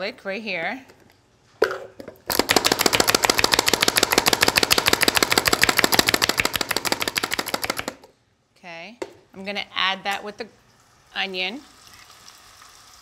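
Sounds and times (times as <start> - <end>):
food chopper clicking: 2.3 - 8.0
food chopper knock: 2.3 - 8.1.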